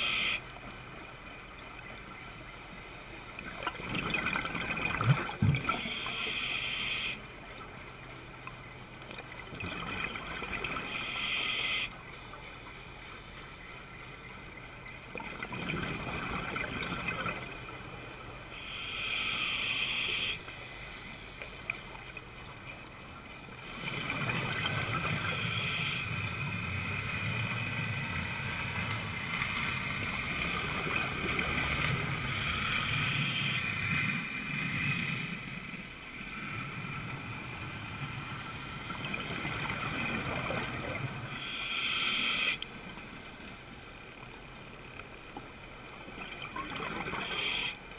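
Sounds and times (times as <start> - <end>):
regulator hissing inhalation: 41.3 - 42.6.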